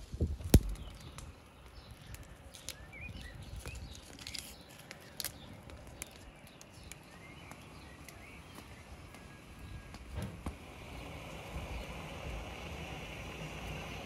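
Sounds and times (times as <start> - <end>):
small birds chirping: 0.5 - 14.0.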